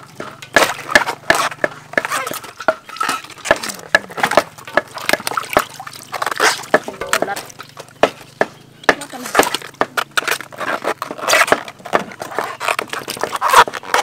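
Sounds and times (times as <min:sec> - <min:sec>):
water sloshing in a metal basin: 0:00.0 - 0:11.4, 0:12.1 - 0:14.0.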